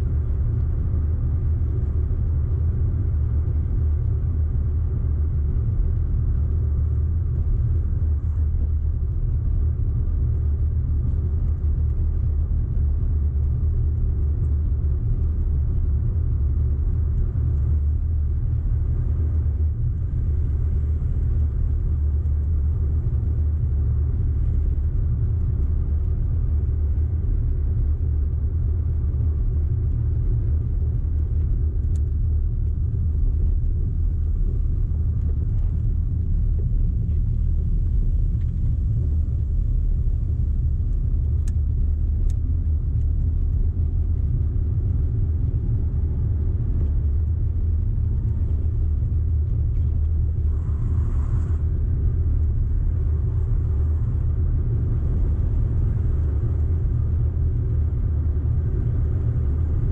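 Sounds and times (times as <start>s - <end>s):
car engine rumble: 0.0s - 59.9s
road noise: 14.4s - 59.9s.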